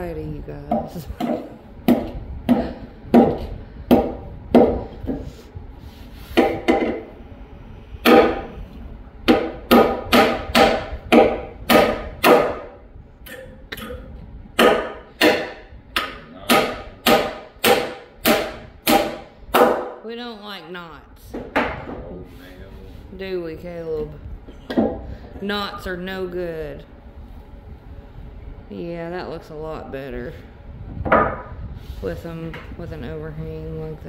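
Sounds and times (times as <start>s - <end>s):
hammer driving nails into wood: 9.3s - 12.7s, 14.6s - 19.9s.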